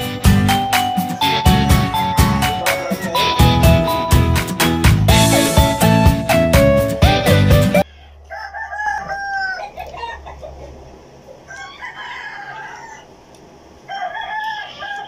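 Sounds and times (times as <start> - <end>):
roosters crowing: 7.8 - 15.0.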